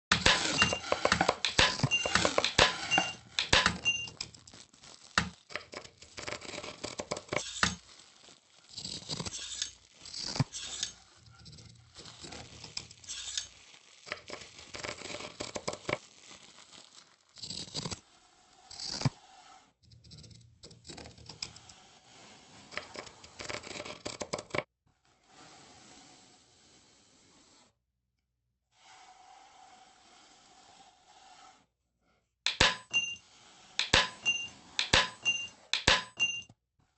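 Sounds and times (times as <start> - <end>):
brush scratching across surface: 0.1 - 19.8, 21.4 - 23.9, 25.0 - 27.8, 28.7 - 31.7, 32.9 - 35.7
short squeaks: 8.7 - 11.7.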